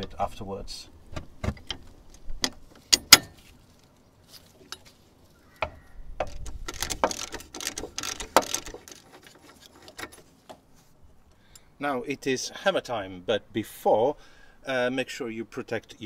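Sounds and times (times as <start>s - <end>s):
metal hand tools clicking: 6.3s - 10.2s.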